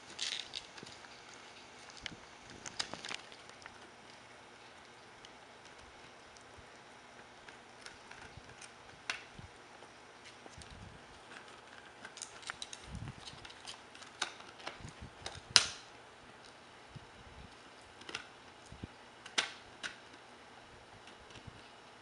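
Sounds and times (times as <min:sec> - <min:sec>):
dog gnawing a bone: 0:00.0 - 0:20.3.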